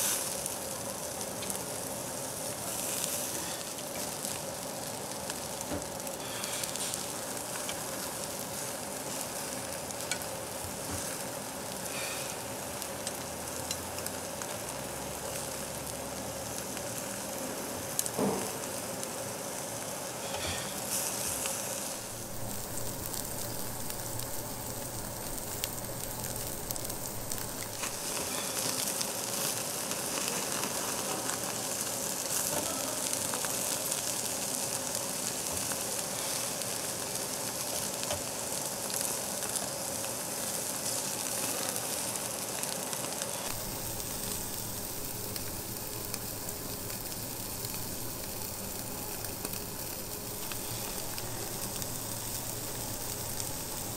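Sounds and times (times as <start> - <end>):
pork sizzling on grill: 0.0 - 53.9.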